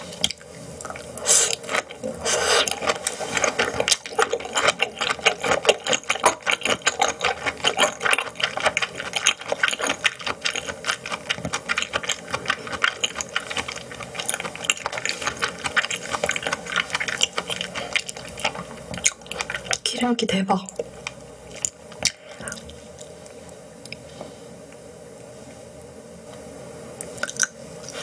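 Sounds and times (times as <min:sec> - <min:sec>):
chewing and mouth smacking: 0:00.1 - 0:19.9, 0:20.7 - 0:23.2, 0:27.0 - 0:28.0.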